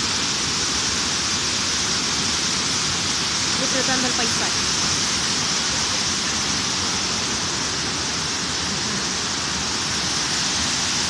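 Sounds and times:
stream rushing over boulders: 0.0 - 11.0
waterfall pouring: 0.0 - 11.0.

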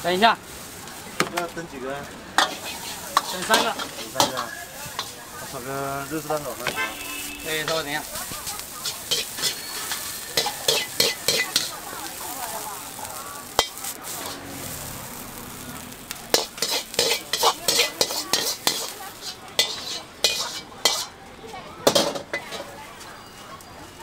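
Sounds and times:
frying sizzle: 0.0 - 24.0
ladle scraping and clanking on wok: 2.3 - 15.4, 16.1 - 21.2, 21.8 - 22.8.

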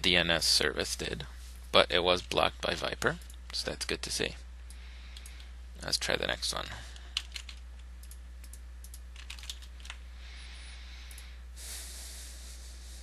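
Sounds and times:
steady low hum: 0.0 - 13.0
computer keyboard key presses: 7.2 - 10.0.

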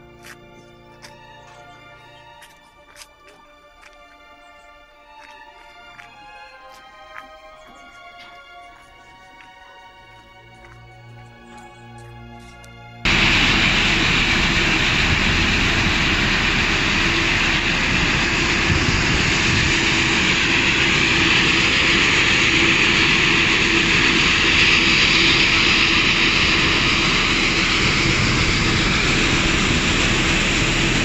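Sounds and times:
music: 0.0 - 13.1.

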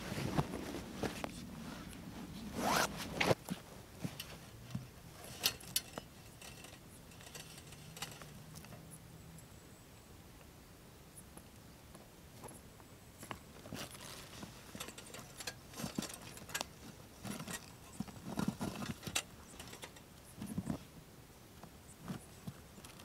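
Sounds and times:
light clicks and rustles of gear: 0.1 - 9.0, 11.2 - 20.9, 21.5 - 23.0
bag zipper pulled shut: 2.5 - 3.4.

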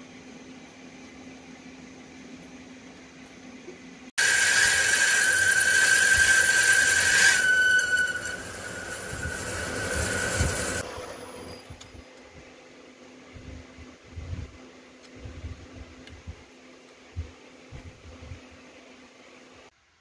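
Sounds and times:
lathe running: 4.2 - 11.7
lathe drilling squeal: 4.2 - 11.8.

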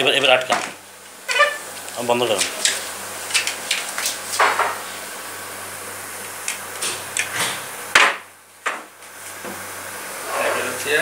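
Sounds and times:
wooden chair scraping: 1.3 - 1.6.

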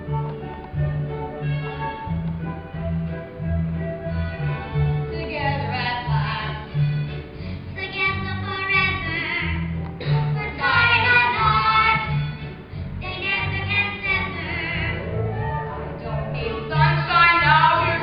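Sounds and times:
musical accompaniment with bass: 0.0 - 18.0
child singing: 7.8 - 12.2, 13.0 - 15.0, 16.4 - 18.0.

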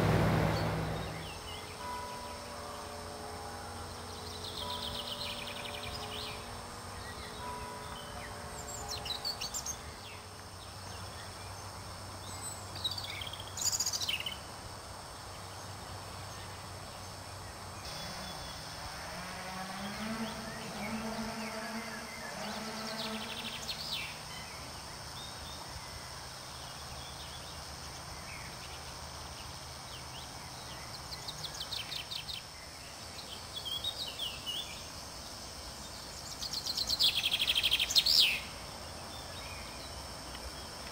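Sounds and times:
low hum: 0.0 - 1.8
songbirds singing: 0.0 - 18.8, 19.8 - 40.9.

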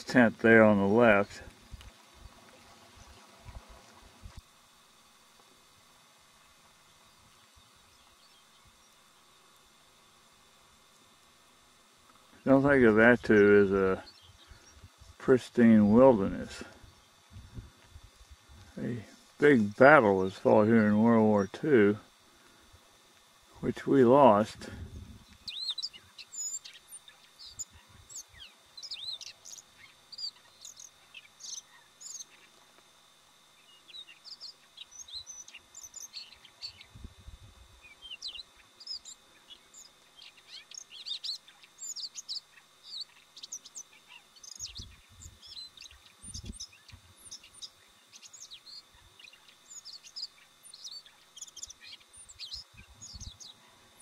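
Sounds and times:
bird singing high chirps: 14.0 - 14.8, 25.2 - 32.6, 33.6 - 37.0, 37.8 - 54.0.

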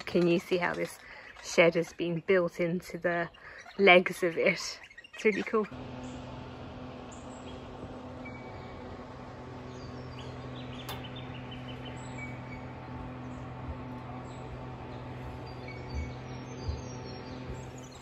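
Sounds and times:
steady low hum: 5.6 - 18.0
high bird chirps: 7.1 - 8.9, 9.5 - 18.0.

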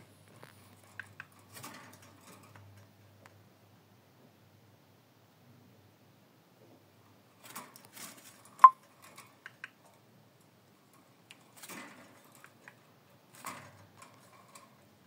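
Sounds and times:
parrot moving in wire cage: 0.4 - 2.9, 7.4 - 9.7, 10.8 - 15.0.

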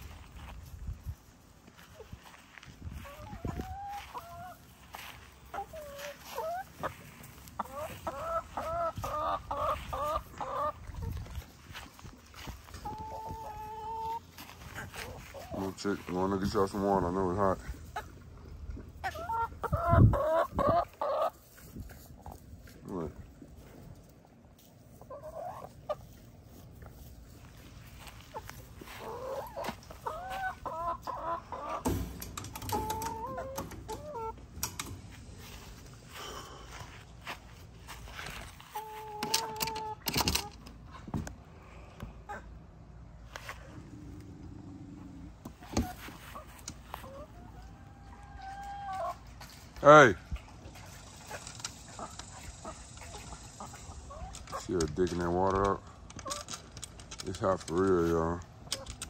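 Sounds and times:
hens clucking: 0.0 - 59.0.

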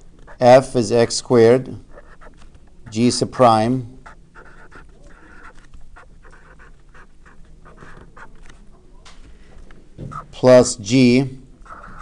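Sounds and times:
marker scratching on paper: 1.9 - 3.2, 4.0 - 8.6.

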